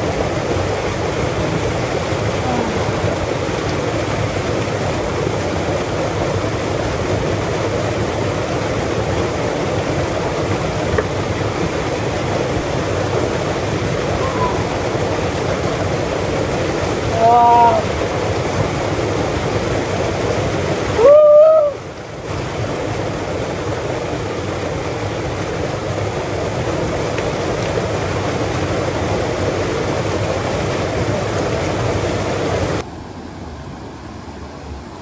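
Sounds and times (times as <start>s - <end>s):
small stream trickling: 0.0s - 32.9s
waterfall rushing into pool: 0.0s - 32.9s
man's loud exclamation: 17.2s - 17.9s.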